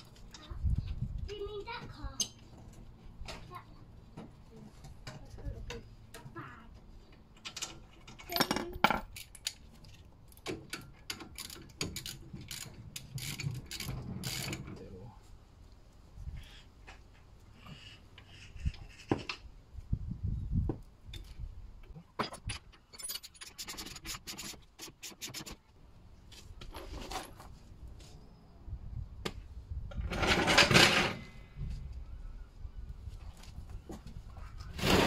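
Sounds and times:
tools scraping and knocking: 21.9 - 25.7, 26.3 - 27.6, 29.9 - 31.5
loud rasping scrape: 34.7 - 35.0.

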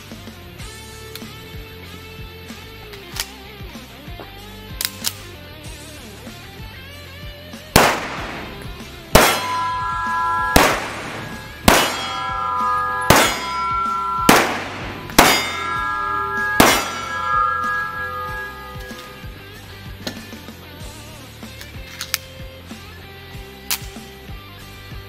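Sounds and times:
pistol shots: 7.8 - 15.6, 16.5 - 17.4
metallic ringing: 7.8 - 19.6.

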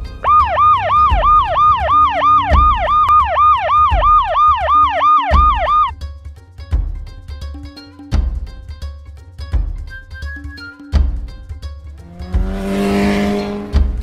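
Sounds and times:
background music with low beat: 0.0 - 14.0
police siren yelping: 0.2 - 5.9.

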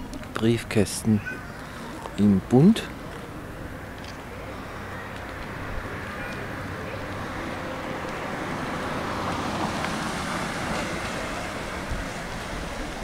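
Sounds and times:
car driving past: 3.6 - 13.0.

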